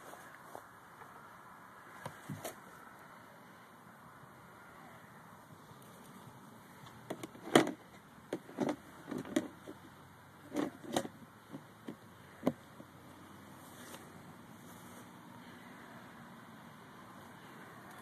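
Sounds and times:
vegetation rustling: 0:13.2 - 0:15.8.

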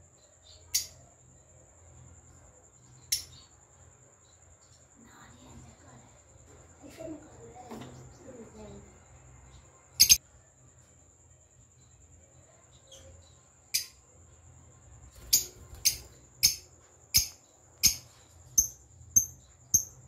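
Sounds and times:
lovebirds chirping shrilly: 0:10.0 - 0:10.2.

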